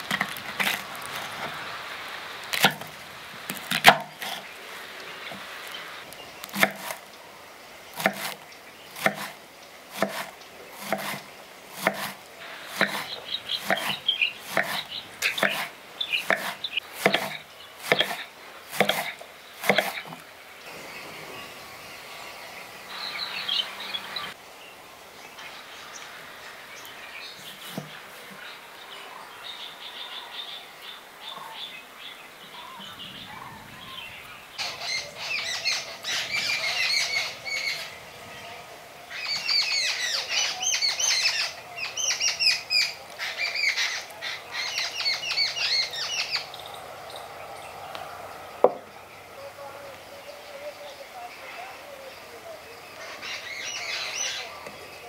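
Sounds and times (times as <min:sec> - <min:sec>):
songbirds chirping: 0:00.0 - 0:55.0.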